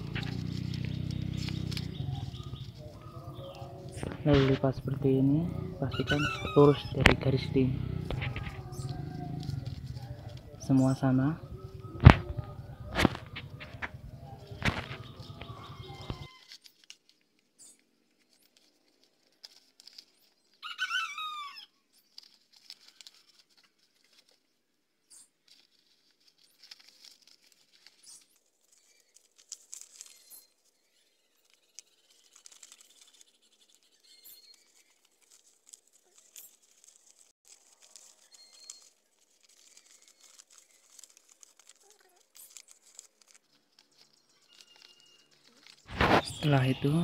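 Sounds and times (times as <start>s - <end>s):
chirping bird call: 0.0s - 16.5s
paper rustling and crinkling: 0.0s - 47.0s.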